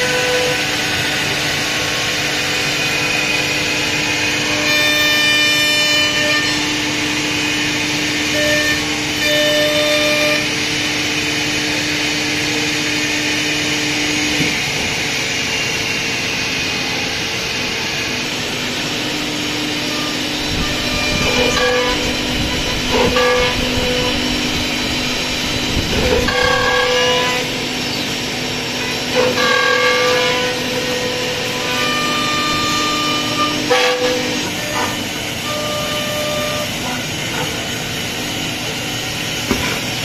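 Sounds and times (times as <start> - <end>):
machining line motor hum and whine: 0.0 - 40.0
dust extraction rush: 12.1 - 29.1.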